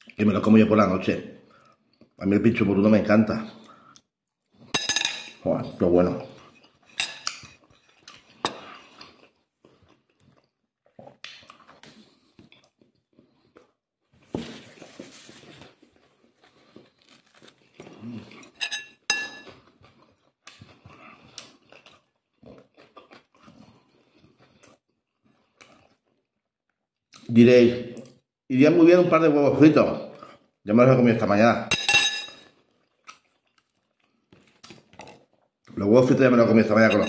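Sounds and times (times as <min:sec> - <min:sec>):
man chewing food: 0:01.4 - 0:02.2, 0:06.3 - 0:27.2, 0:32.4 - 0:35.7
tableware clinking: 0:04.8 - 0:05.4, 0:06.9 - 0:07.6, 0:18.5 - 0:19.5, 0:31.7 - 0:32.5, 0:36.8 - 0:37.0.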